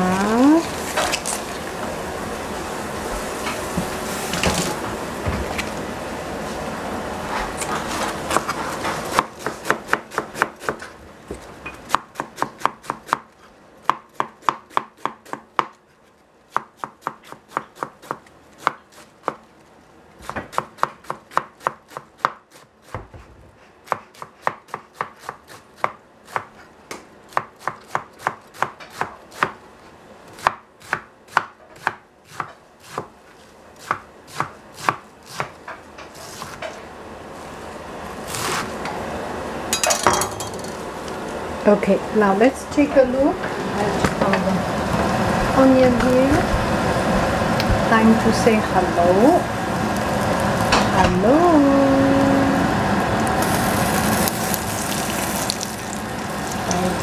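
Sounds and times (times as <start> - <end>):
knife chopping on cutting board: 8.3 - 10.9, 11.9 - 15.8.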